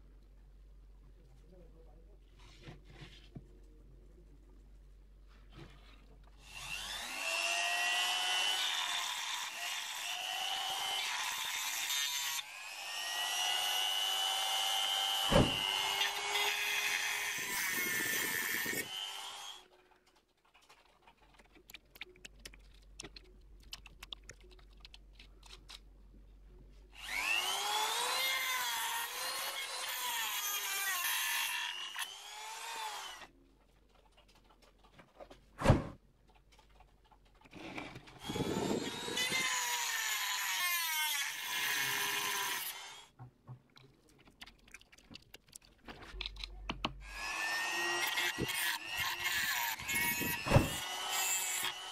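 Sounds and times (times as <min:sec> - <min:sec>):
rotary tool cutting stone: 0:06.4 - 0:19.8, 0:27.0 - 0:33.3, 0:37.5 - 0:43.1, 0:46.2 - 0:51.9.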